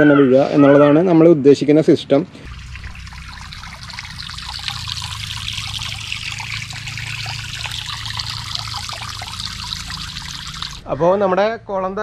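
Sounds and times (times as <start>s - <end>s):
hose spraying into pond: 2.4s - 10.8s
water trickling over stone: 2.4s - 10.9s.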